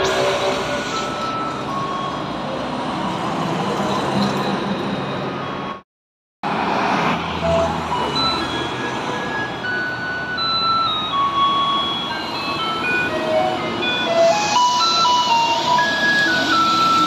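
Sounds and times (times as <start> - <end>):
road traffic passing: 0.0 - 5.8, 6.4 - 17.0.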